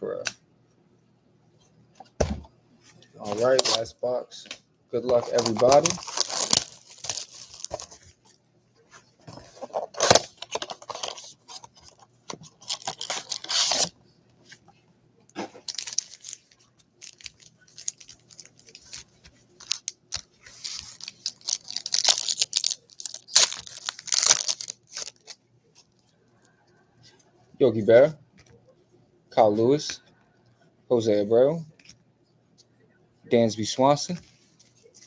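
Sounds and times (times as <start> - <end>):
foil card packs tearing: 5.1 - 7.9, 12.6 - 13.9, 15.6 - 19.0, 19.6 - 25.4.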